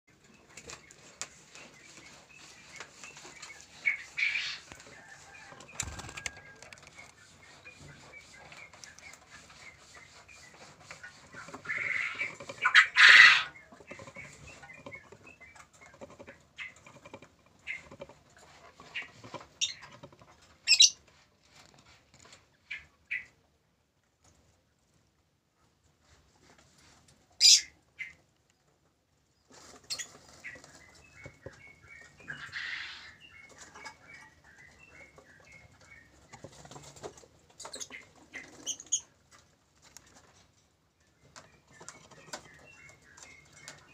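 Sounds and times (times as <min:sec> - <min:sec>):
wings flapping: 0:05.7 - 0:06.8
birds squawking: 0:11.6 - 0:13.6.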